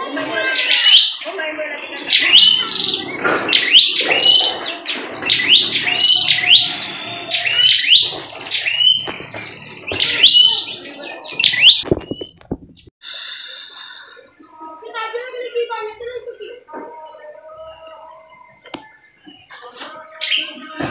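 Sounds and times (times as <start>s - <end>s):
bird singing sharp chirps: 1.9s - 12.4s.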